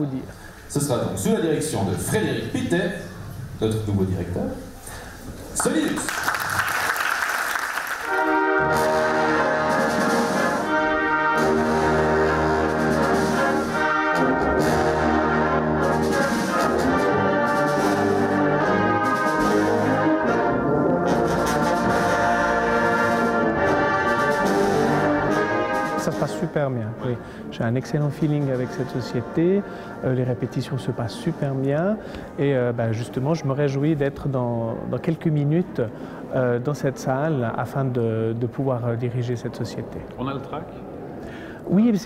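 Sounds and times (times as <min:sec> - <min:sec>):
applause: 0:05.6 - 0:08.3
brass band playing chords: 0:07.5 - 0:32.4.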